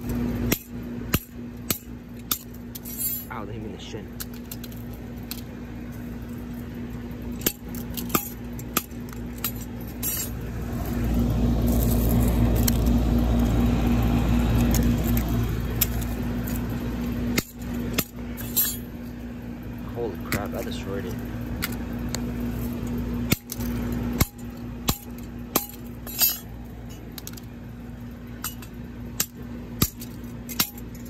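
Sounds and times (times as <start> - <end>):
low rumble: 9.5 - 20.3.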